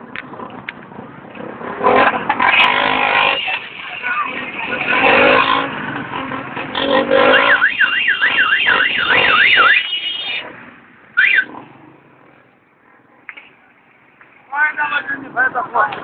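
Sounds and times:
electronic siren warbling: 0:07.1 - 0:10.4, 0:11.2 - 0:11.5
siren chirp: 0:07.1 - 0:10.4, 0:11.2 - 0:11.5.

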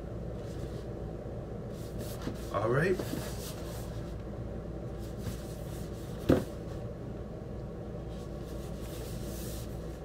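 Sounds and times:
low background hum: 0:00.0 - 0:10.0
cardboard box thump: 0:06.2 - 0:06.6.

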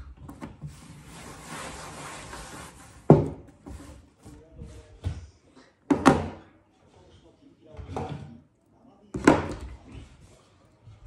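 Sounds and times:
dishes knocking and clattering: 0:05.9 - 0:06.5, 0:09.1 - 0:10.2.

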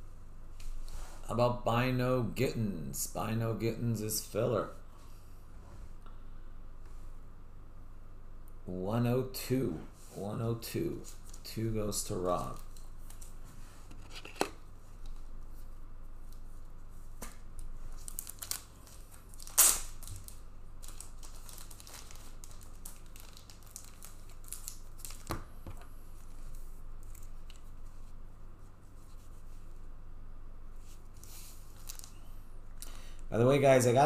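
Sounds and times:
low steady hum: 0:00.0 - 0:34.0
card wrappers rustling and tearing: 0:17.9 - 0:25.5, 0:31.2 - 0:32.2.

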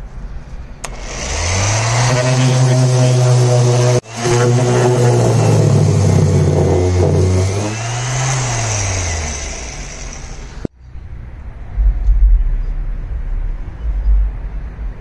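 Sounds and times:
orbital sander sanding wood: 0:00.9 - 0:10.7.

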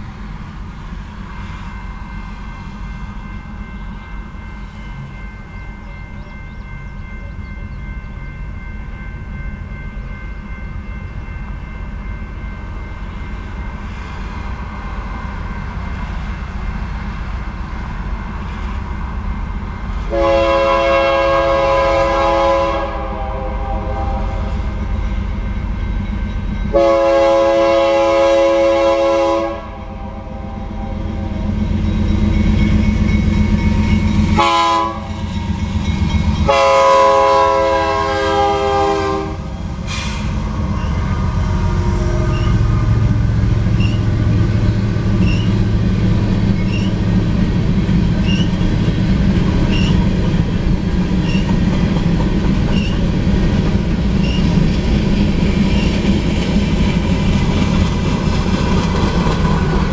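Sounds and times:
diesel locomotives rumbling past: 0:00.0 - 0:59.9
rail cars clicking past: 0:00.0 - 0:59.9
locomotive air horn blasts: 0:20.1 - 0:24.6, 0:26.7 - 0:31.4, 0:34.3 - 0:35.2, 0:36.4 - 0:43.2.

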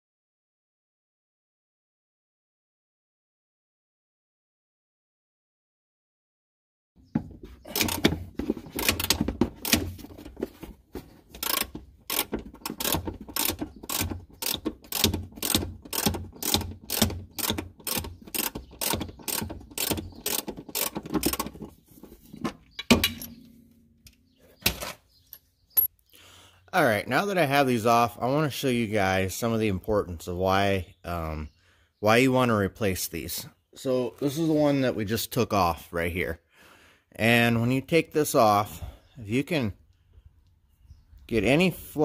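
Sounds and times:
ratchet wrench clicking: 0:07.8 - 0:08.2, 0:11.4 - 0:21.5.

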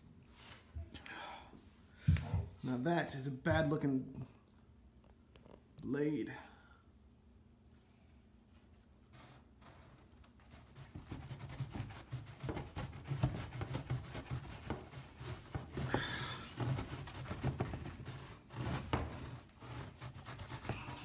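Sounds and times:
handling noise rubbing and scuffing: 0:08.5 - 0:21.0.

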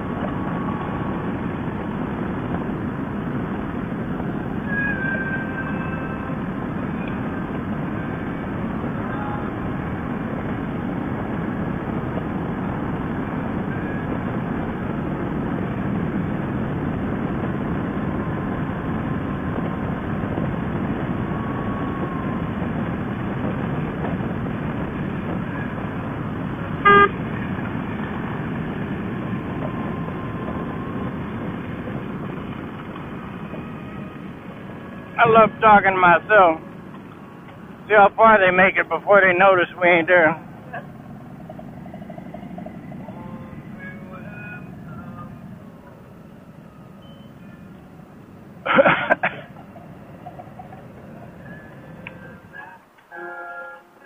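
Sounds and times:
motorcycle wind and engine noise: 0:00.0 - 0:37.9
motorcycle horn toot: 0:26.8 - 0:27.2, 0:53.1 - 0:53.9.

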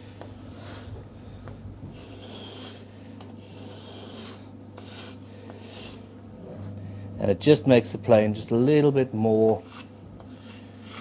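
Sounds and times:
low steady hum: 0:00.0 - 0:11.0
plane rasping on abrasive paper: 0:00.3 - 0:01.0, 0:01.9 - 0:06.1, 0:09.6 - 0:11.0.

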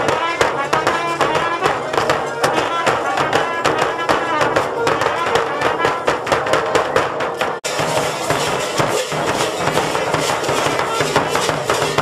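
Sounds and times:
accordion notes: 0:00.0 - 0:06.9
trumpet notes: 0:00.0 - 0:07.0
bass drum beats: 0:00.0 - 0:12.0
folk band playing lively tune: 0:00.0 - 0:12.0.

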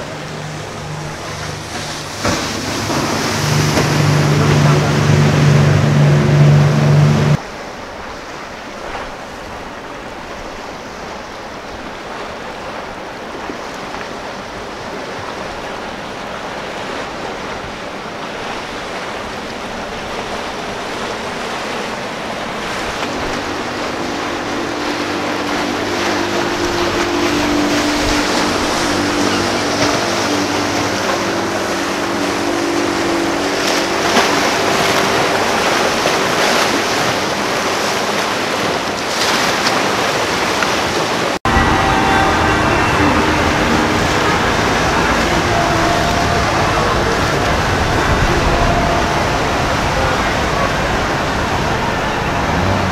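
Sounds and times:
boat engine: 0:00.0 - 0:52.9
boat wake rushing water: 0:00.0 - 0:52.9.

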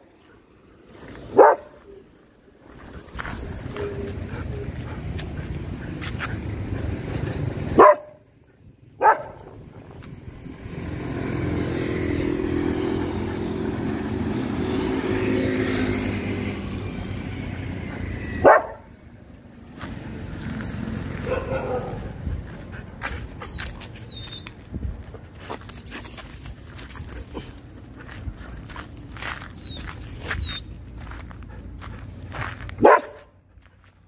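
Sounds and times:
vehicle engine passing: 0:00.0 - 0:33.9
dog barking: 0:01.3 - 0:01.8, 0:07.8 - 0:08.2, 0:09.0 - 0:09.5, 0:18.4 - 0:18.9, 0:21.2 - 0:22.2, 0:32.8 - 0:33.3.

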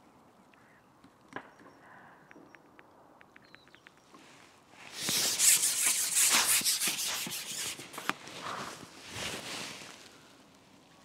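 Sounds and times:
fishing pole rustling and rubbing: 0:04.8 - 0:09.9.

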